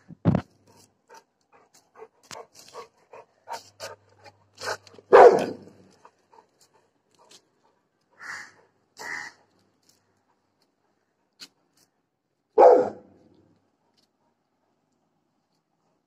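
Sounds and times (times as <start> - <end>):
dog barking: 4.6 - 5.8, 12.6 - 13.2.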